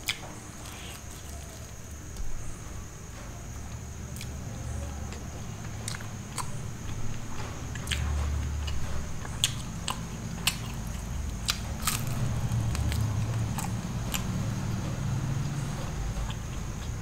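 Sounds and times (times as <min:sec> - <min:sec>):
person chewing: 0:07.8 - 0:14.3.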